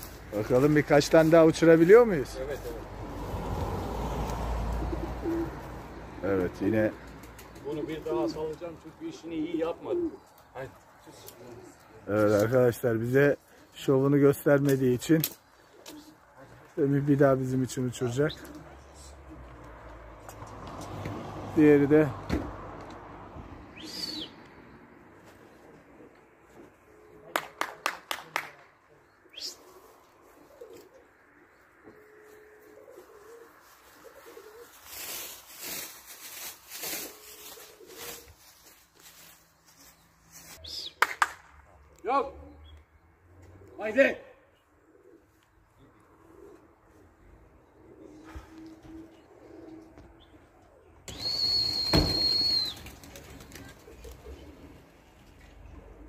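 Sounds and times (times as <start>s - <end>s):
pigeons cooing: 2.9s - 12.0s, 25.4s - 27.4s, 29.0s - 35.2s, 37.0s - 38.6s, 44.5s - 56.0s
sharp claps: 27.3s - 28.7s, 40.9s - 41.6s
high steady whistle: 51.1s - 52.8s
sharp knock: 51.9s - 52.3s.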